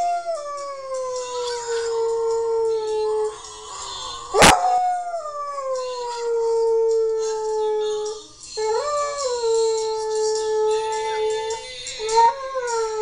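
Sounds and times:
dog howling: 4.1s - 13.0s.

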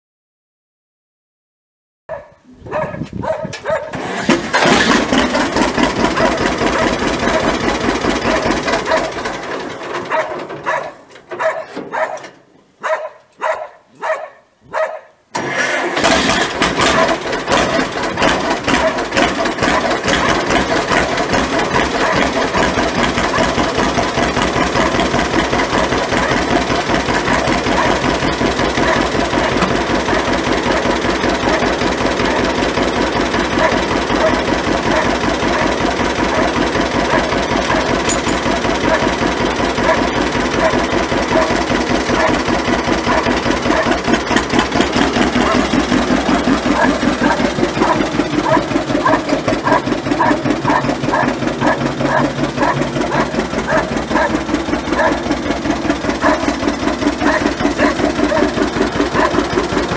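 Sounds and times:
tractor engine running and popping: 2.1s - 13.6s, 15.3s - 59.9s.

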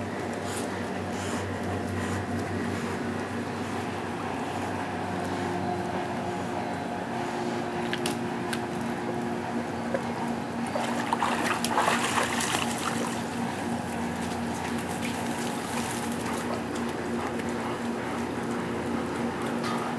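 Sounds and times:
steady low hum: 0.0s - 19.9s
pool water splashing: 10.0s - 14.2s.

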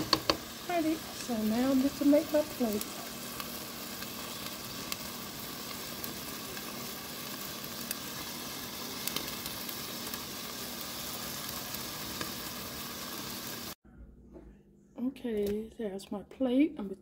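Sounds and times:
food sizzling with crackles: 0.0s - 13.8s
faint low hum: 13.9s - 17.0s.

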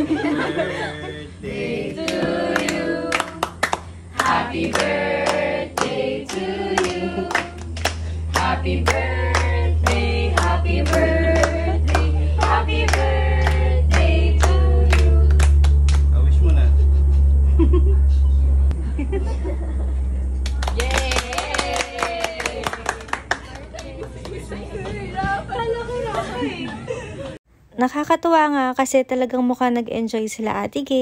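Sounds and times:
group singing birthday song: 0.0s - 16.1s, 21.5s - 26.7s
low steady hum: 0.0s - 31.0s
rhythmic hand clapping: 2.0s - 16.2s, 20.4s - 25.0s.

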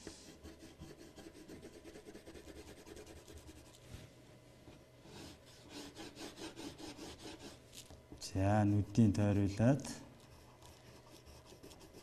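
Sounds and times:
pencil scratching on paper: 0.2s - 3.8s, 5.1s - 7.6s, 10.2s - 12.0s.

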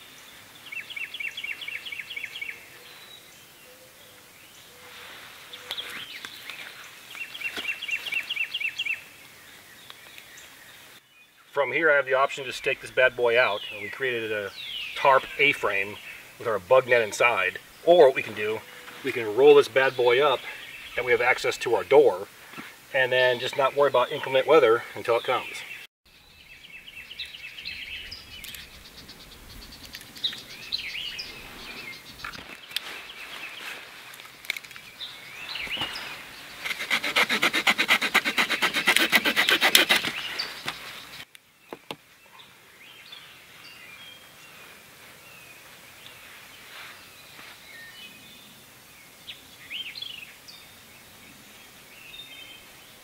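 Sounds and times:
birds chirping: 0.0s - 53.0s
knife sawing through wooden stick: 36.6s - 40.3s.

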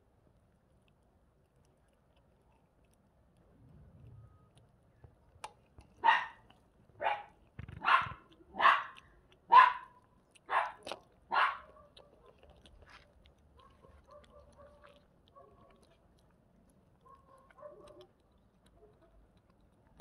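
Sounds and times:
dog barking: 6.0s - 6.4s, 7.0s - 12.5s, 13.6s - 16.0s, 17.0s - 18.1s.

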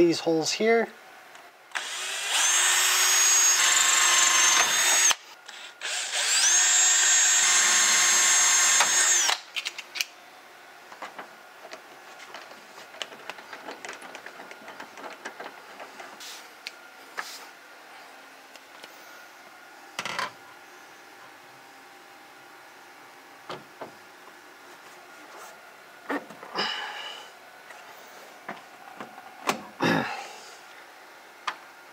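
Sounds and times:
cordless drill drilling metal: 1.7s - 9.5s
faint clicks and handling noises: 10.9s - 17.3s.

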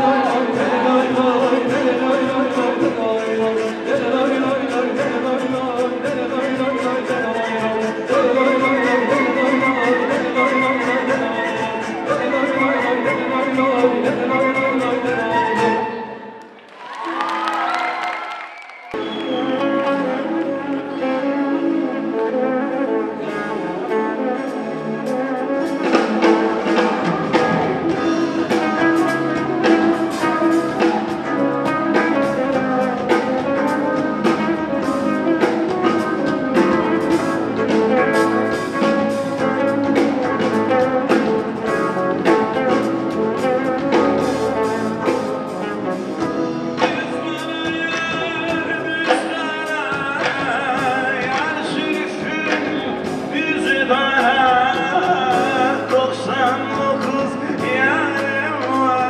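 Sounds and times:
drum kit steady beat: 0.0s - 15.7s, 25.1s - 59.0s
person singing: 0.0s - 16.4s, 19.0s - 59.0s
electric guitar: 19.0s - 59.0s.

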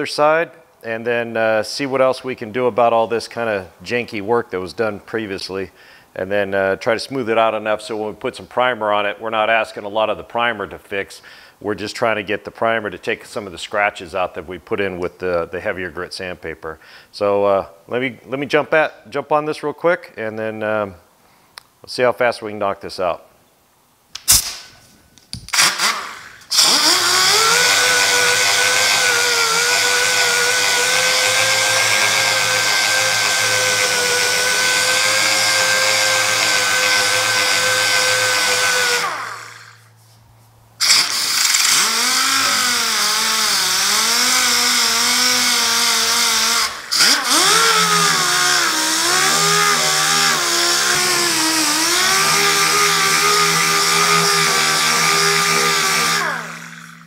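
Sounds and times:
pneumatic sander whine: 25.5s - 39.9s, 40.8s - 57.0s.

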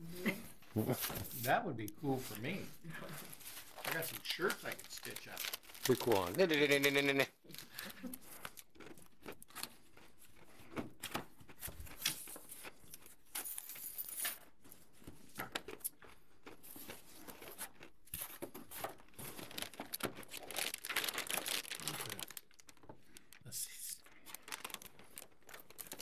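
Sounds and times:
cardboard and paper rustling: 2.1s - 8.6s, 17.2s - 23.4s, 24.1s - 26.0s
plastic wrapping crinkling: 2.1s - 10.1s, 17.1s - 26.0s.

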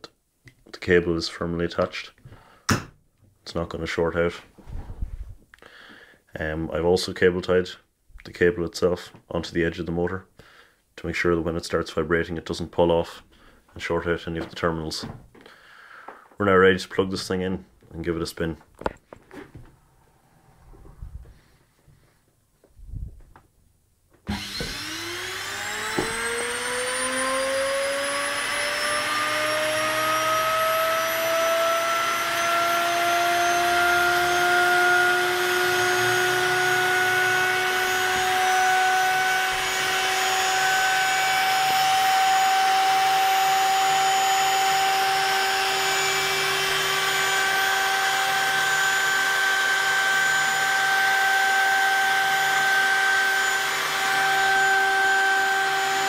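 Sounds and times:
electric motor whining: 24.3s - 56.0s.

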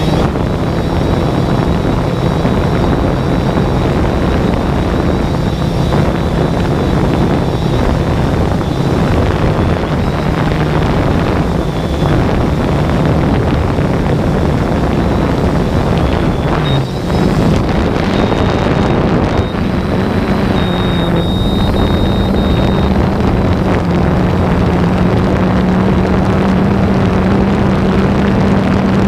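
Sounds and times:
drone motors humming: 0.0s - 29.0s
wind noise on microphone: 0.0s - 29.0s.

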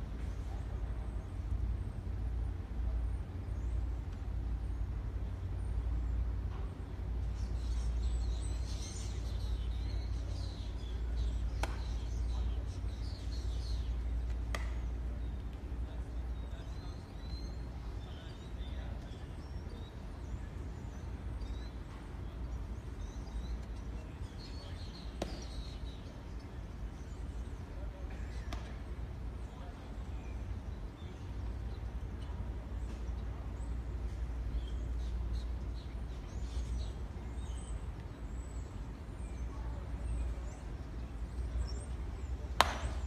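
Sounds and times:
steady low rumble: 0.0s - 28.0s
birds chirping: 0.0s - 43.0s
baseball bat cracks: 11.6s - 12.0s, 14.3s - 14.8s, 42.6s - 43.0s.

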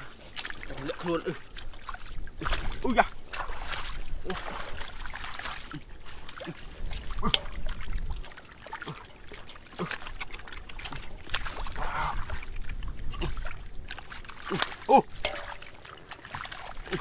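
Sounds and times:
muddy water splashing: 0.0s - 17.0s
fish flapping in water: 1.4s - 17.0s.

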